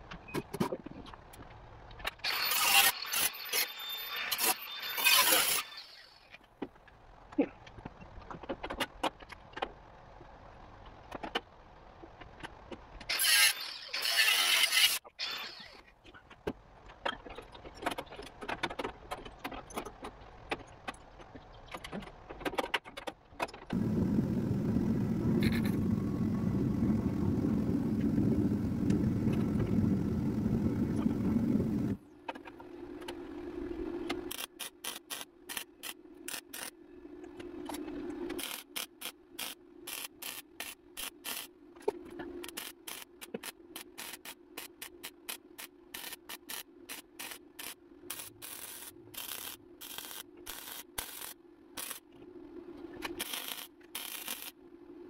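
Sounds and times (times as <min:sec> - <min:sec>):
low machine hum: 0:23.7 - 0:34.3
crackling welding bursts: 0:23.8 - 0:32.0, 0:34.3 - 0:36.7, 0:38.4 - 0:41.5, 0:42.4 - 0:52.1, 0:53.2 - 0:54.6.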